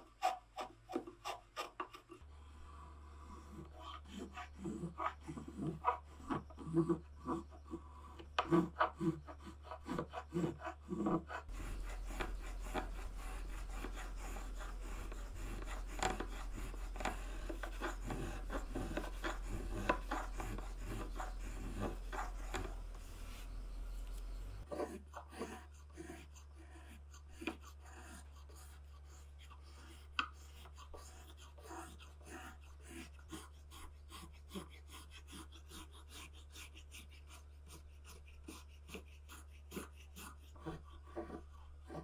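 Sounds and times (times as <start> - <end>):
hand plane scraping wood: 0.0 - 2.3, 3.3 - 42.0
steady low hum: 11.5 - 24.7.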